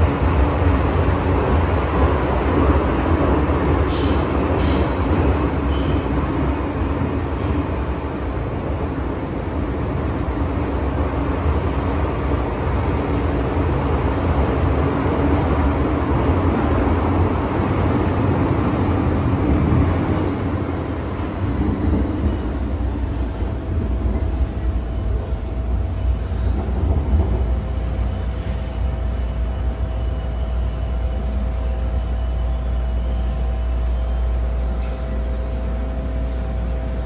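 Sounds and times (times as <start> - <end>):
train wheels rumbling on rails: 0.0 - 37.0.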